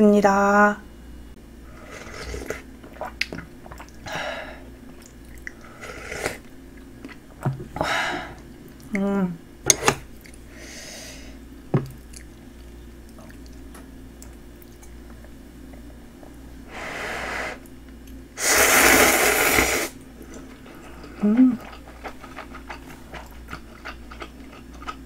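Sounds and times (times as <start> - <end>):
noodles being slurped: 18.4 - 24.2.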